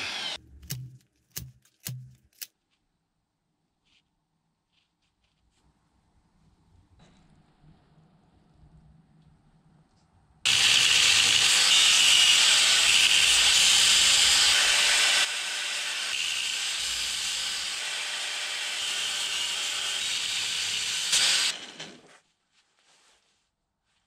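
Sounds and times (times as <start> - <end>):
angle grinder cutting steel: 0.0 - 0.4, 10.5 - 22.1.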